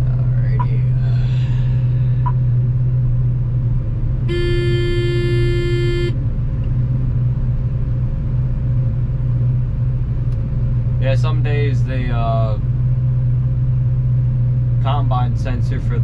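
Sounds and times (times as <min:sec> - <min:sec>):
combine harvester droning: 0:00.0 - 0:07.0
held tone: 0:04.3 - 0:06.2.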